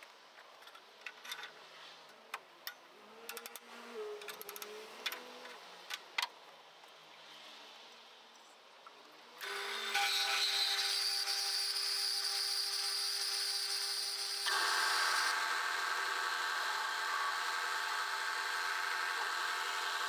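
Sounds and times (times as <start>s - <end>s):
bandsaw cutting metal with whine: 9.4s - 20.0s.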